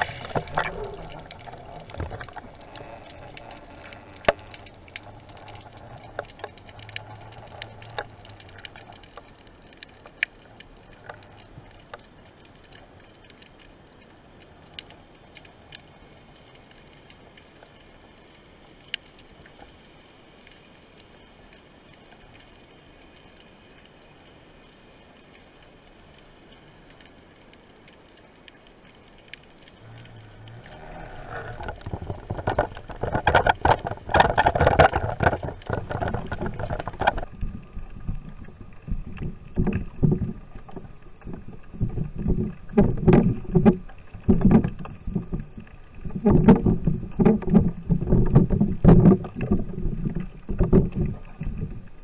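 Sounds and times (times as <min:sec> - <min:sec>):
faint underwater hiss: 0:00.0 - 0:34.2
sharp underwater clicks: 0:00.0 - 0:37.3
low hum: 0:29.7 - 0:39.6.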